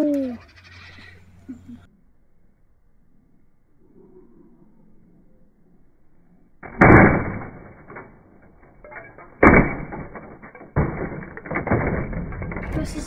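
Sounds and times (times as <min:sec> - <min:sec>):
rough clatter: 0:06.6 - 0:13.0
laptop crashing onto tarmac: 0:09.4 - 0:12.9.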